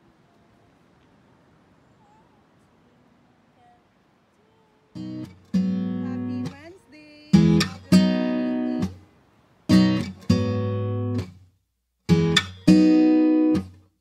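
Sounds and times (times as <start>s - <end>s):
acoustic guitar strumming chords: 4.9s - 9.1s, 9.7s - 11.4s, 12.1s - 13.9s.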